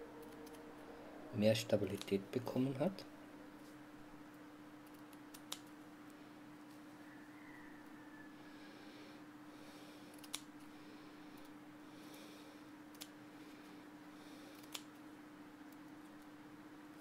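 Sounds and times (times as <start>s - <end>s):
scissors snipping netting: 4.9s - 5.8s, 14.6s - 14.9s.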